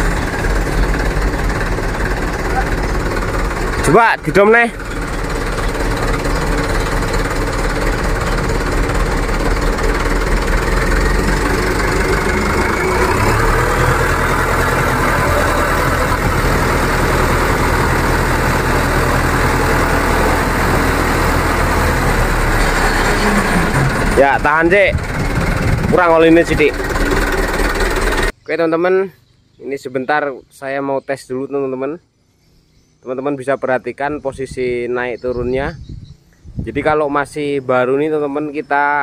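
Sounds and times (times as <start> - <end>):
diesel truck engine running: 0.0 - 28.3.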